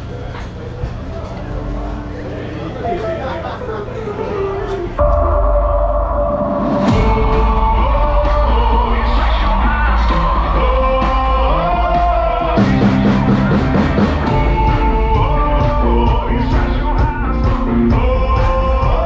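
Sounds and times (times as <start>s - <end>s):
drums: 0.0s - 2.4s, 4.7s - 19.0s
person singing: 4.0s - 19.0s.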